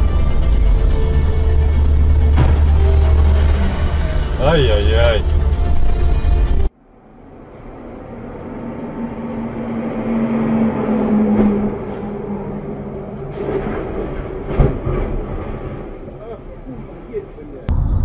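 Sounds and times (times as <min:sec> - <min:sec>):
heavy vehicle rumble: 0:00.0 - 0:18.0
sharp thump: 0:02.4 - 0:02.8.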